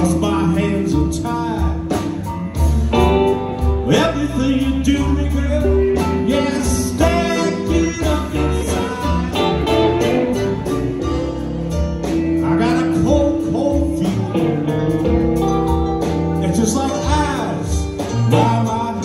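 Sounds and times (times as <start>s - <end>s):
live band playing: 0.0s - 19.0s.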